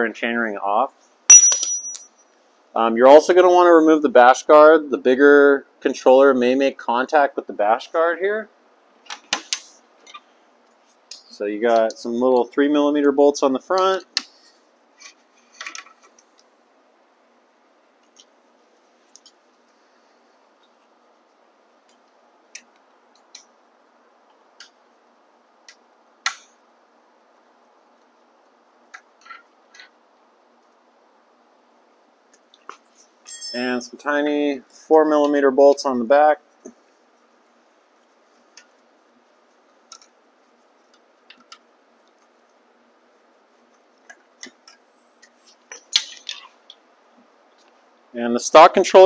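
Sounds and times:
metal clinks: 1.3s - 2.4s, 33.2s - 33.9s.

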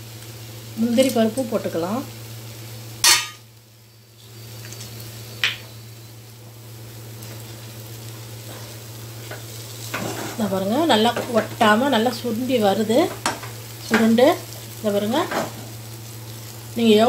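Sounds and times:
low steady sizzle: 0.0s - 17.0s
metal spoon stirring in pan: 8.4s - 10.5s.

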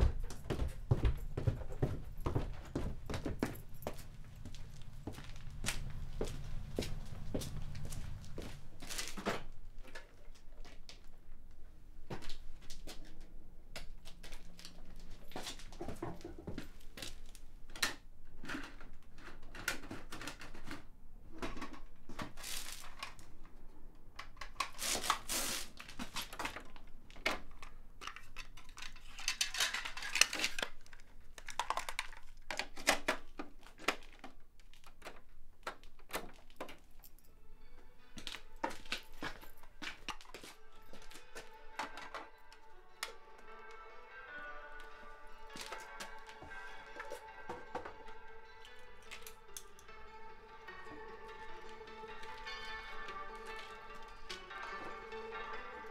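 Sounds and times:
metal parts and tools clinking: 27.4s - 32.9s, 46.9s - 49.9s.

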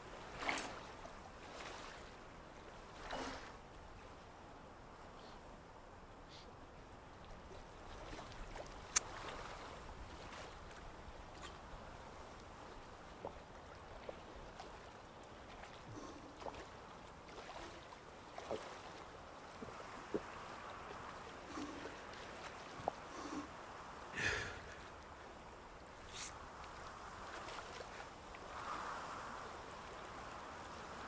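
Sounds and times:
man swallowing: 24.2s - 24.8s.

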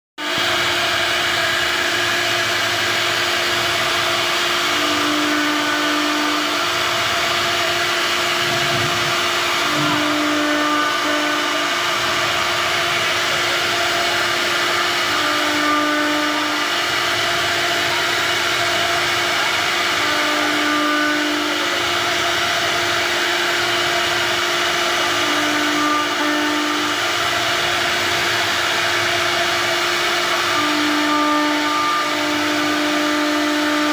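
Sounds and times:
cnc router spindle whine: 0.2s - 33.9s
wood cutting noise: 0.2s - 33.9s
low hum: 4.6s - 15.2s.

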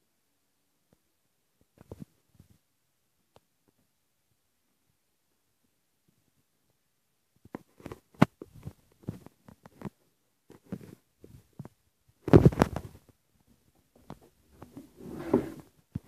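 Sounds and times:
rubbing on microphone: 14.5s - 16.0s.

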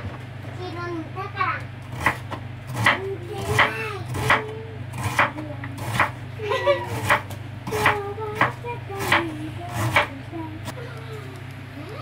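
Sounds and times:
steady low hum: 0.0s - 12.0s
knife chopping on cutting board: 1.9s - 6.2s, 6.9s - 10.2s.

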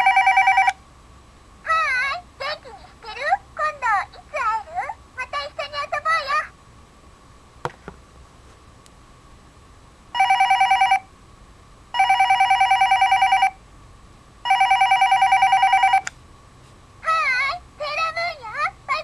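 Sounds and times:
toy phone trilling beeps: 0.0s - 0.7s, 10.2s - 11.0s, 12.0s - 13.5s, 14.5s - 16.1s.

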